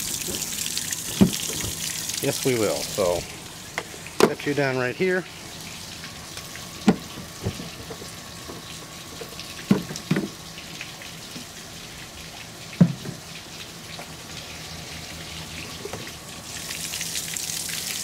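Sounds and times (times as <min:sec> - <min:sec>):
hose water splashing: 0:00.0 - 0:18.0
outboard motor running: 0:00.0 - 0:18.0
engine cover knocks: 0:00.2 - 0:01.8, 0:06.8 - 0:08.1, 0:09.7 - 0:10.4.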